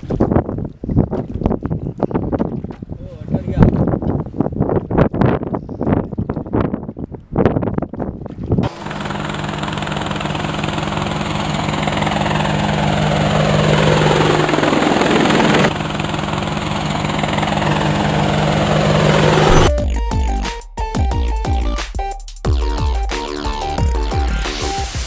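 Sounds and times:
drone propellers whirring: 8.6 - 20.4.

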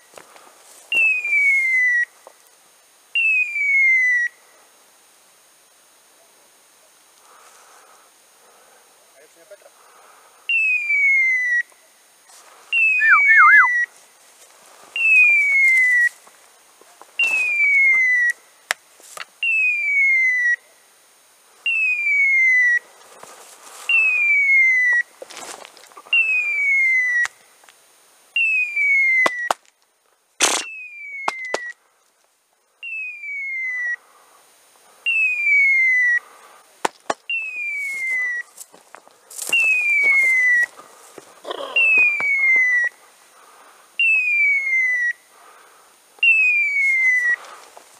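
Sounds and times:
falling electronic beeper tone: 12.8 - 13.8.

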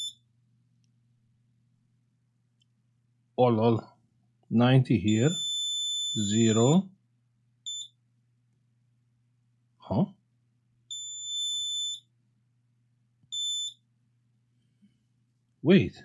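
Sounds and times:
multimeter beeping: 0.0 - 0.3, 5.1 - 6.8, 7.6 - 8.0, 10.9 - 12.1, 13.3 - 13.9.

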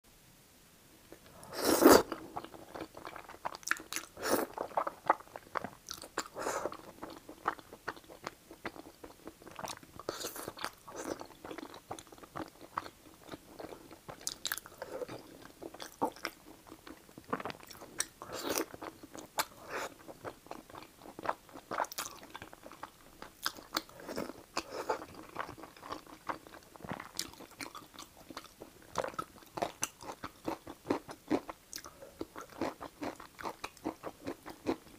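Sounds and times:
person slurping noodles: 1.4 - 2.2, 4.2 - 4.8
wet chewing and smacking: 2.4 - 34.9.

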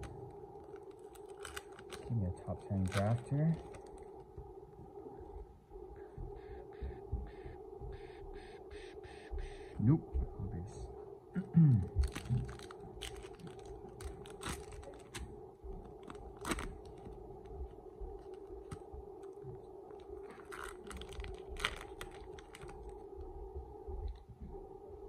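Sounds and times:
foil pack crinkling: 0.0 - 4.3, 12.0 - 23.0
low thumps: 4.4 - 10.5.

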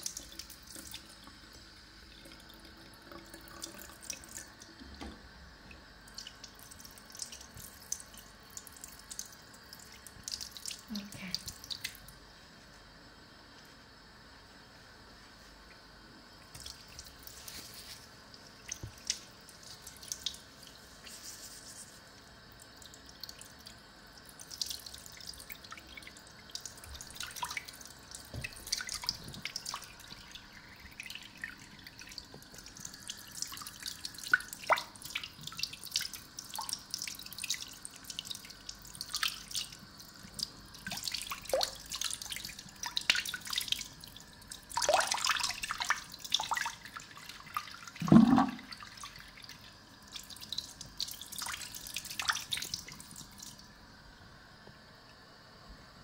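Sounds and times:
water dripping and splashing: 6.1 - 12.2, 16.4 - 53.6
water plop: 47.9 - 48.9.

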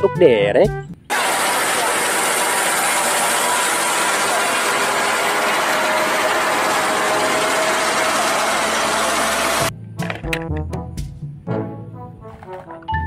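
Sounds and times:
crane mechanical grinding: 1.1 - 9.7.

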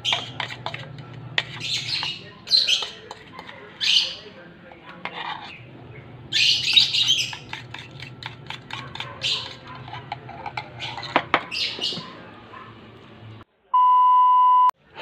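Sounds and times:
fork scraping and tapping in tin: 0.0 - 3.7, 6.7 - 12.1
birds chirping: 0.0 - 4.4, 5.4 - 9.8, 10.6 - 13.4.

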